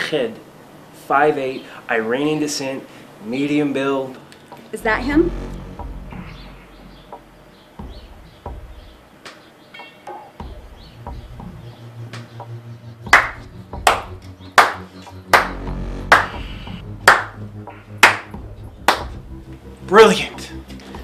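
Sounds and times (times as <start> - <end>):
low faint hum: 1.1 - 9.2
sharp ringing hits: 4.8 - 9.1, 9.7 - 11.1.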